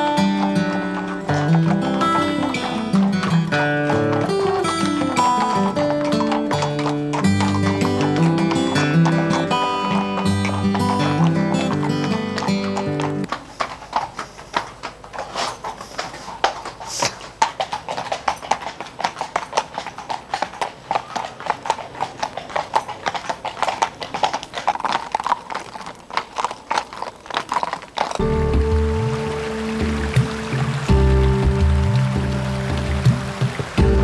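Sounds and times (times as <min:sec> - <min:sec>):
horse hooves clip-clopping on pavement: 0:00.0 - 0:34.0
background music: 0:28.2 - 0:34.0.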